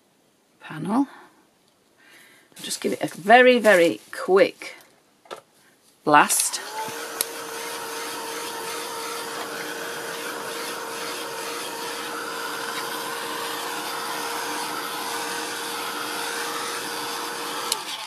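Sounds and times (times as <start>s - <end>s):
motor hum: 6.4s - 18.0s.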